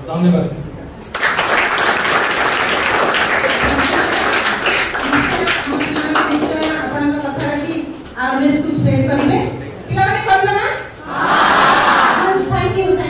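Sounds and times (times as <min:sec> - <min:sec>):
audience applauding: 0:01.1 - 0:06.9
woman speaking: 0:04.9 - 0:11.0, 0:12.2 - 0:13.0.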